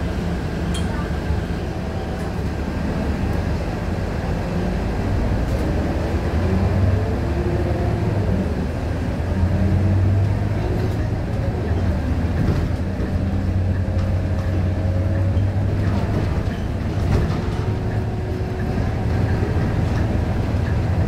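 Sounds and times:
bus diesel engine drone: 0.0s - 21.0s.

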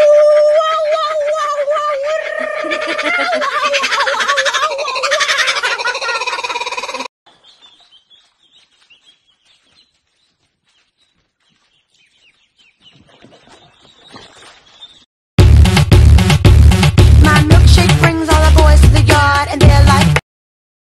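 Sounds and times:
ducklings peeping: 5.0s - 15.0s.

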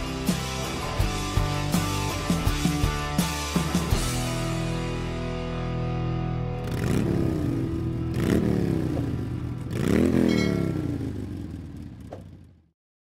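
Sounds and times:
motorcycle engine revving: 6.6s - 12.7s.

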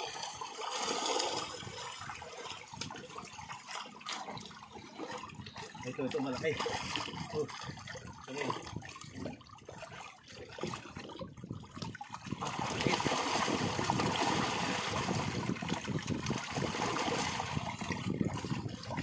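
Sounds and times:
fish splashing in a net: 11.8s - 19.0s.

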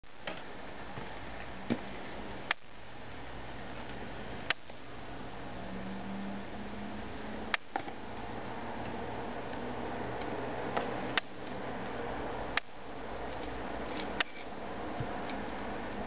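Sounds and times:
steady hiss and low hum: 0.0s - 16.0s.

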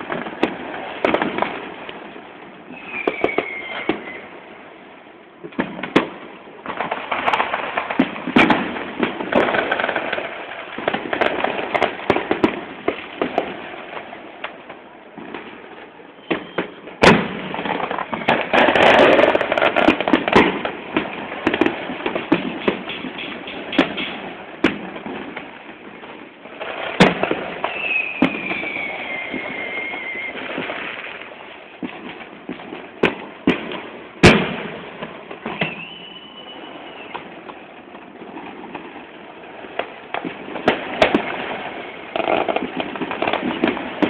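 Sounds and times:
fireworks crackling and popping: 0.0s - 44.0s
loud firework bang: 16.2s - 25.2s, 31.8s - 36.1s.

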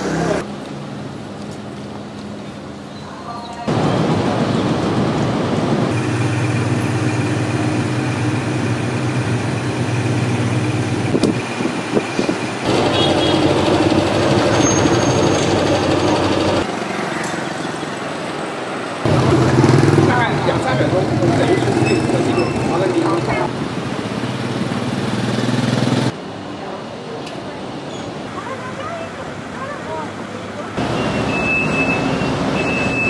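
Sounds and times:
vehicle engine running: 5.9s - 11.8s, 12.4s - 16.7s.

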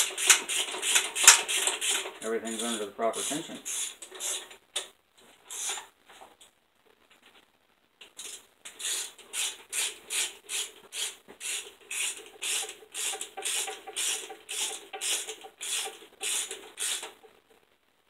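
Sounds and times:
hand ratchet clicking: 0.0s - 2.7s, 8.2s - 17.2s.

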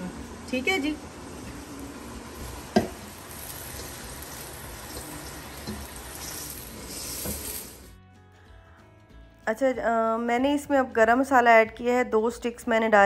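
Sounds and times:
onion sizzling in hot oil: 0.0s - 8.0s
spatula stirring in pot: 2.7s - 7.9s.

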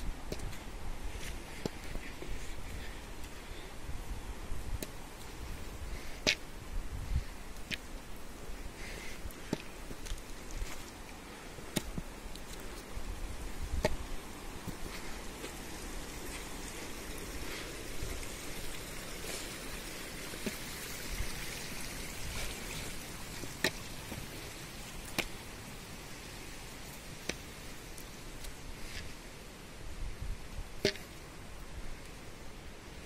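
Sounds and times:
footsteps on stone steps: 0.0s - 3.4s, 4.8s - 25.5s.

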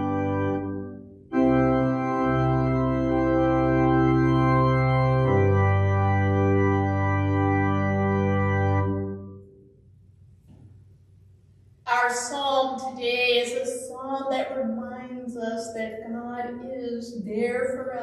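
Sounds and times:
church organ chords: 0.0s - 9.5s.

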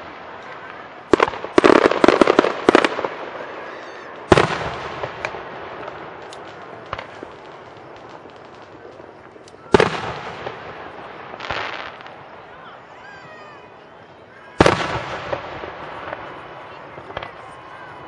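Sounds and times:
firework shells bursting: 0.4s - 12.4s
faint firework pops: 4.2s - 12.2s, 14.6s - 17.5s.

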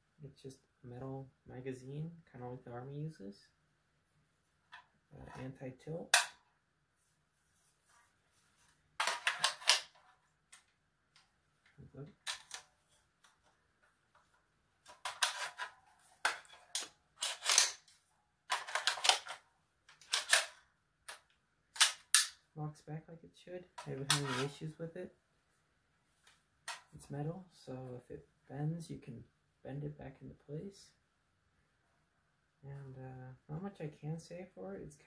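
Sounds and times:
rifle magazine and bolt clacking: 16.3s - 17.9s, 18.5s - 21.2s, 21.8s - 22.4s.

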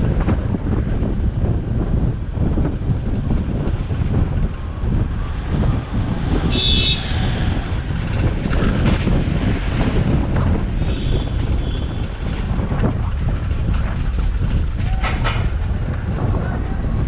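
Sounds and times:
car road rumble: 0.0s - 17.0s
wind buffeting microphone: 0.0s - 17.0s
high car horn beep: 6.5s - 7.1s.

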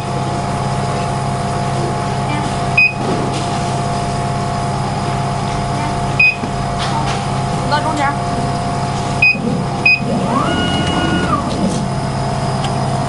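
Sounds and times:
machine fans and pumps humming: 0.0s - 13.0s
short high beeps: 2.8s - 3.0s, 6.2s - 6.4s, 9.2s - 10.1s.

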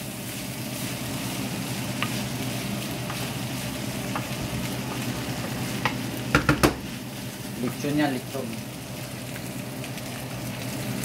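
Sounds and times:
meat sizzling in a pan: 0.0s - 11.0s
wooden spatula stirring: 0.3s - 8.0s
spatula knocking the pan: 4.9s - 6.9s.

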